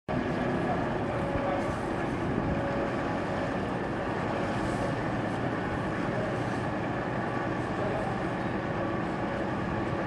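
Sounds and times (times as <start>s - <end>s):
wind buffeting microphone: 0.1s - 7.3s
ship engine running: 0.1s - 10.0s.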